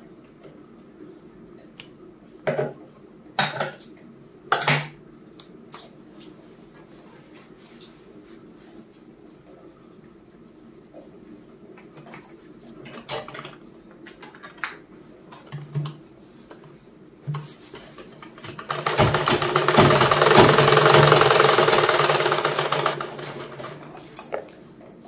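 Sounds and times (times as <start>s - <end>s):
sewing machine ticking: 18.6s - 23.7s.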